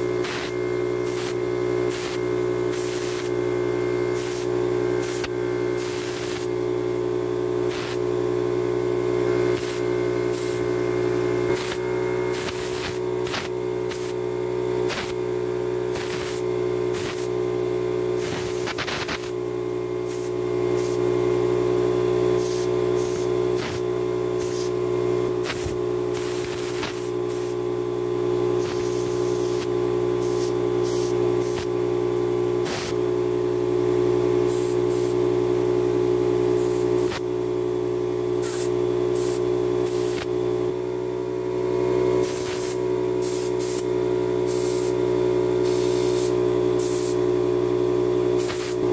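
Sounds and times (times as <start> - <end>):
compressed air blasts: 0.0 - 3.3, 4.1 - 6.5, 7.7 - 8.1, 9.5 - 10.6, 11.5 - 14.2, 14.8 - 15.2, 15.9 - 17.4, 18.2 - 19.4, 20.0 - 21.0, 22.4 - 23.8, 24.4 - 24.8, 25.4 - 27.6, 28.6 - 31.7, 32.6 - 33.0, 34.5 - 35.2, 36.6 - 37.2, 38.4 - 40.3, 42.2 - 45.0, 45.6 - 47.2, 48.4 - 48.8
air compressor humming: 0.0 - 48.9.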